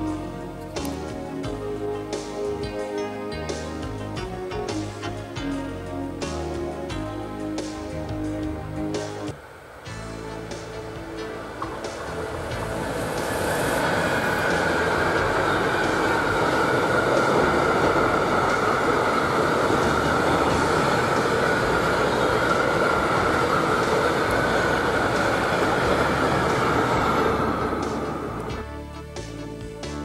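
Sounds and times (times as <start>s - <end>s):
train wheels rumbling on rail: 0.0s - 30.0s
high whine: 6.4s - 30.0s.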